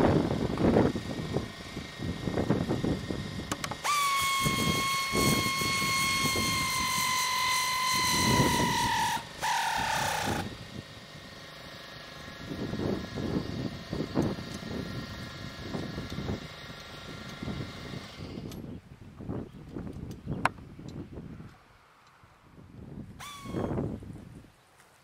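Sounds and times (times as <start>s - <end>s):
wind rumble on microphone: 0.0s - 3.7s, 4.4s - 7.2s, 7.9s - 11.4s, 12.2s - 24.6s
power drill whining: 0.0s - 18.6s, 23.2s - 23.9s.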